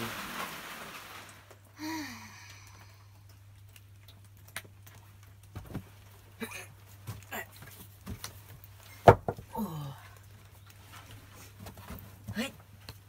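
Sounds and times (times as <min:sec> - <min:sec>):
light wooden clicks and knocks: 0:07.1 - 0:09.5.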